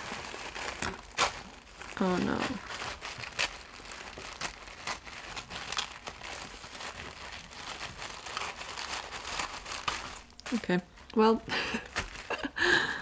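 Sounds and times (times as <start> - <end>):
tissue paper crinkling: 0.0 - 12.6.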